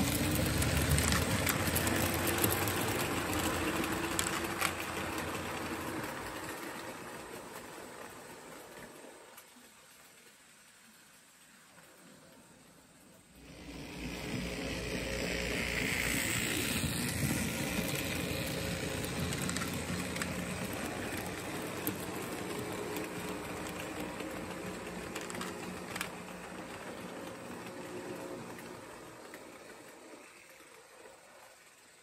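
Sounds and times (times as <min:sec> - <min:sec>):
model train wheels clattering: 0:00.0 - 0:32.0
low motor hum: 0:13.4 - 0:29.3.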